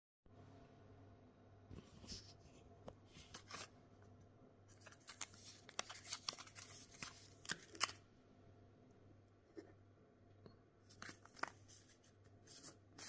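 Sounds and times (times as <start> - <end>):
faint steady hum: 0.3 - 13.0
plastic wrapper crinkling: 4.7 - 8.0.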